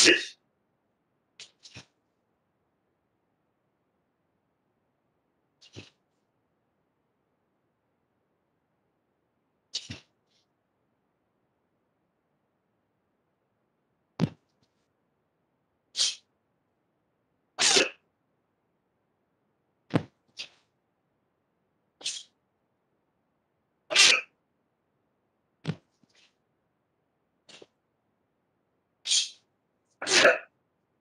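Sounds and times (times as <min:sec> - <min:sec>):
sharp forceful exhalations: 0:00.0 - 0:00.4, 0:16.0 - 0:16.3, 0:22.0 - 0:22.3, 0:29.0 - 0:29.4.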